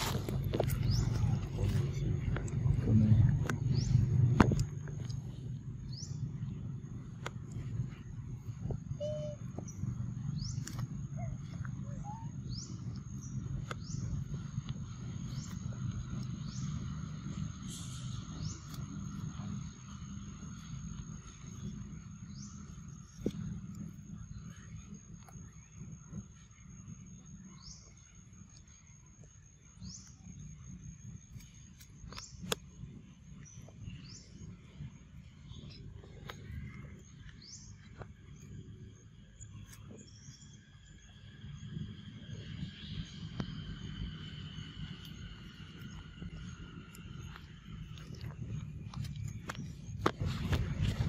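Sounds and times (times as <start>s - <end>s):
bird chirping: 0.0s - 30.7s, 31.4s - 51.0s
high insect tone: 0.0s - 51.0s
low rumble: 0.0s - 51.0s
rising bird chirps: 5.2s - 20.8s.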